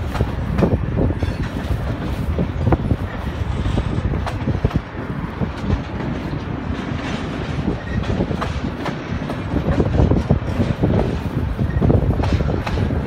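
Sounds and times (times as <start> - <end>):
train low rumble: 0.0 - 13.0
train wheels clacking over rail joints: 0.0 - 13.0.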